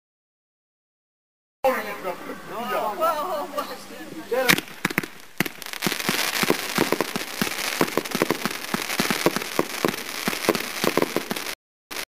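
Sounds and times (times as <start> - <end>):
fireworks crackling: 1.7 - 12.0
fireworks pops and bangs: 4.4 - 12.0.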